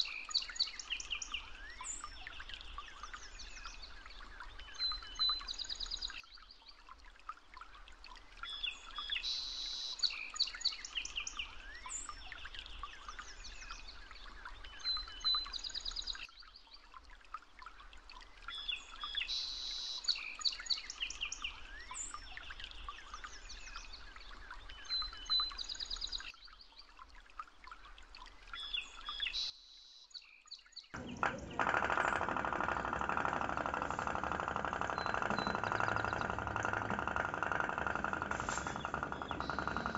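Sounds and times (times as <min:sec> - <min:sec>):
birds chirping: 0:31.0 - 0:39.9
toy boat engine putter: 0:31.0 - 0:39.9.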